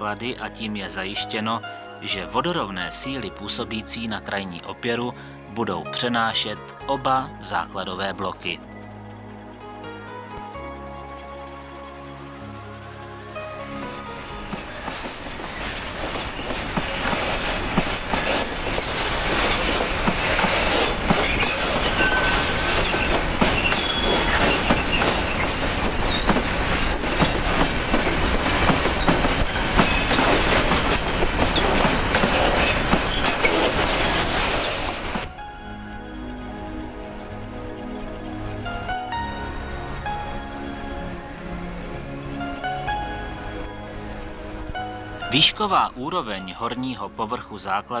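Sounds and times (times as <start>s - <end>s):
train wheels rumbling: 11.6s - 45.7s
high wheel squeals: 21.2s - 30.8s.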